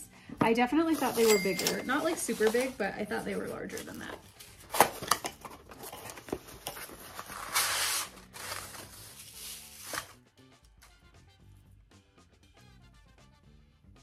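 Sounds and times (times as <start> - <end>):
packaging clicks and taps: 3.8 - 7.1.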